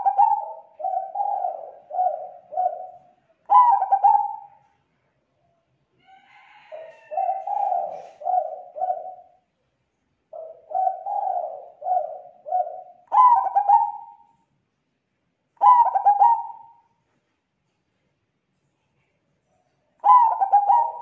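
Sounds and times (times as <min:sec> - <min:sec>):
dove cooing: 0:00.0 - 0:04.6, 0:06.4 - 0:09.4, 0:10.3 - 0:14.4, 0:15.6 - 0:16.9, 0:19.9 - 0:21.0
dove trilled phrases: 0:00.0 - 0:04.6, 0:07.1 - 0:09.3, 0:10.4 - 0:14.2, 0:15.6 - 0:16.8, 0:20.0 - 0:21.0.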